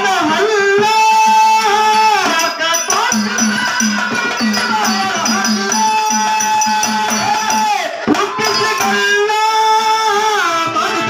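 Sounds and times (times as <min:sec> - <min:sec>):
man singing: 0:00.0 - 0:11.0
small hand cymbals jingling: 0:01.9 - 0:09.2
hand drum beat: 0:02.2 - 0:09.0.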